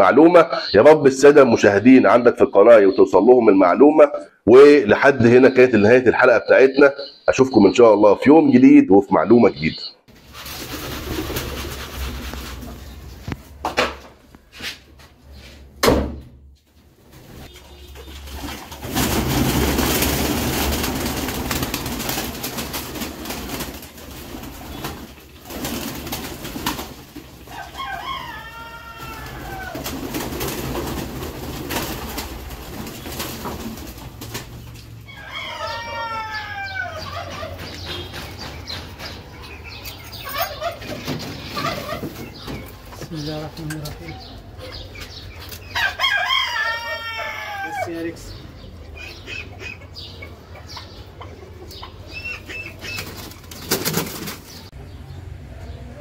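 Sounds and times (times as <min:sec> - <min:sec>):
bird calls: 0:00.0 - 0:10.1, 0:17.4 - 0:56.0
wings flapping: 0:10.1 - 0:13.0, 0:17.0 - 0:28.3, 0:28.9 - 0:35.0, 0:52.4 - 0:54.7
pigeons cooing: 0:18.7 - 0:54.7.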